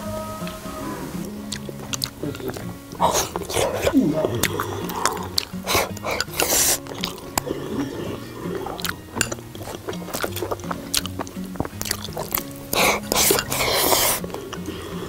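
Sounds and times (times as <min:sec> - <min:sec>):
background music with low notes: 0:00.0 - 0:15.0
slurping soup: 0:00.8 - 0:15.0
chopsticks clicking on porcelain bowl: 0:04.5 - 0:07.2.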